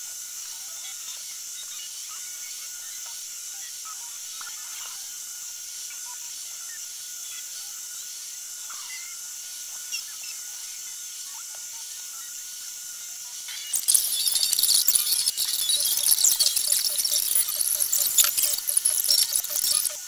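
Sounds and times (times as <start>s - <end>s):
faint bird chirps: 13.6s - 20.0s.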